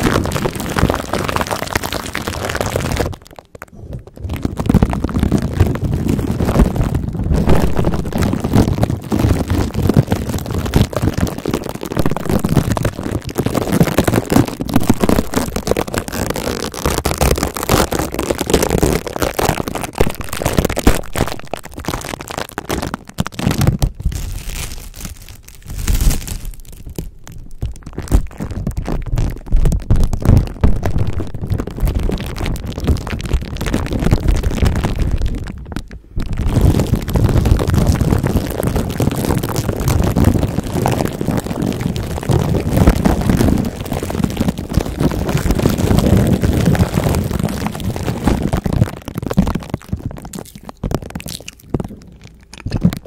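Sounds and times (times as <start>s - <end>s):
plastic cling wrap crinkling: 0.0s - 53.0s.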